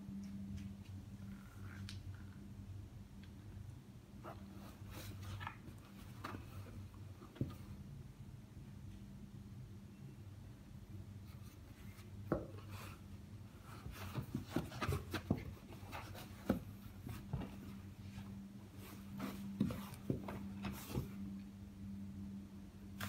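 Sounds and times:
cardboard box rustling and knocking: 0:13.8 - 0:17.8, 0:18.9 - 0:21.2.

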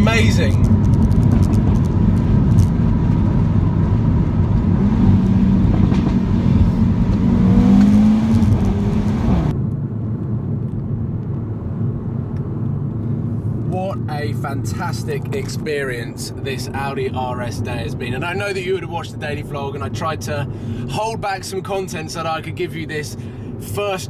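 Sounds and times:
car engine revving in cabin: 0:00.0 - 0:09.6
road noise: 0:00.0 - 0:24.0.

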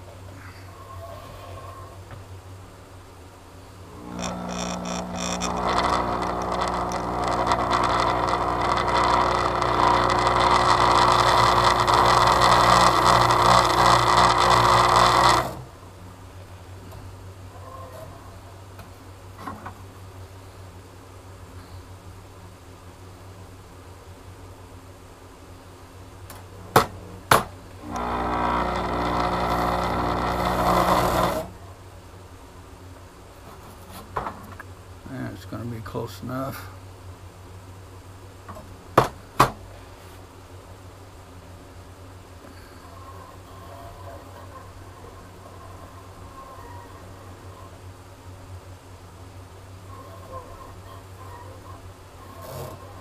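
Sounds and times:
small electric motor humming: 0:03.8 - 0:15.8, 0:26.6 - 0:31.6.

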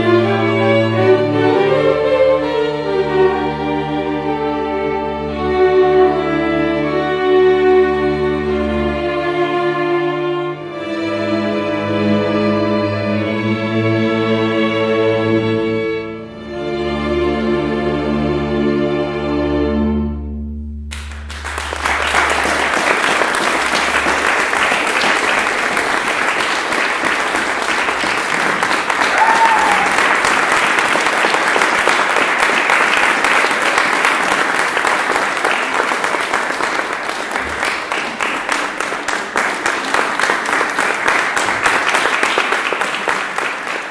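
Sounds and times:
audience applauding: 0:20.9 - 0:43.9.

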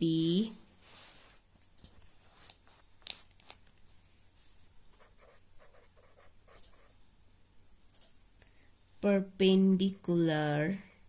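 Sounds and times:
pen scratching on paper: 0:05.0 - 0:07.0.

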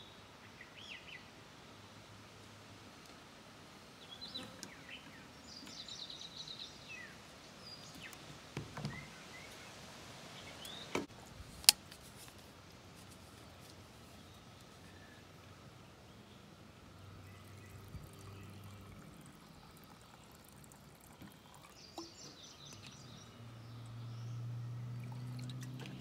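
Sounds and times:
small birds chirping: 0:04.0 - 0:11.1, 0:13.0 - 0:26.0.

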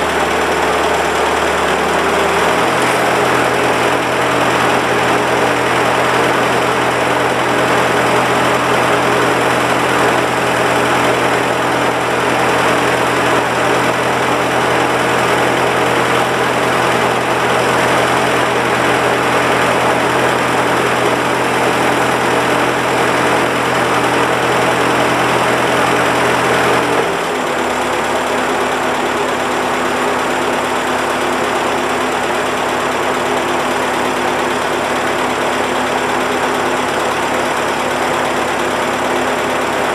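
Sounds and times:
tractor engine running: 0:00.0 - 0:39.9.

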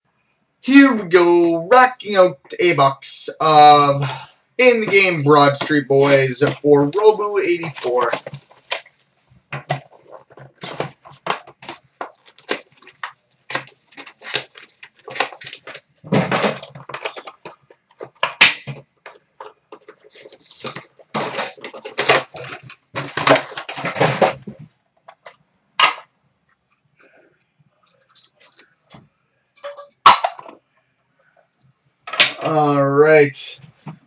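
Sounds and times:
card wrapping rustling: 0:04.6 - 0:25.4.

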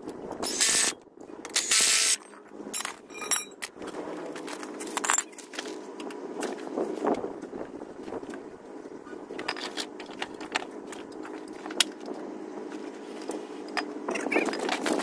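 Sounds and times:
low machine hum: 0:00.0 - 0:15.0
metallic tool clinks and scrapes: 0:02.2 - 0:03.7.

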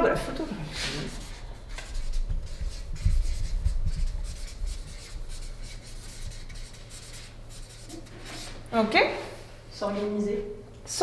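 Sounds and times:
marker rubbing on paper: 0:00.7 - 0:08.6.

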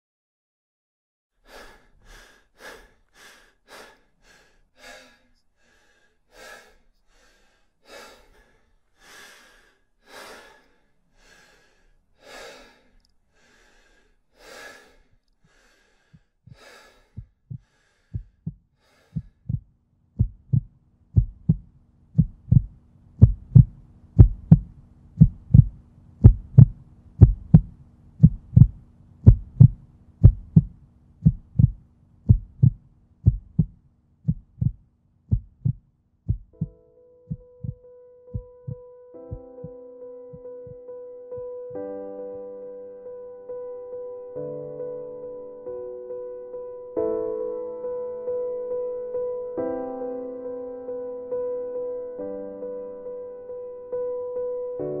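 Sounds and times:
short sharp breaths: 0:01.4 - 0:19.4
deep heartbeat-like thumps: 0:16.5 - 0:39.7
low steady hum: 0:20.2 - 0:33.8.

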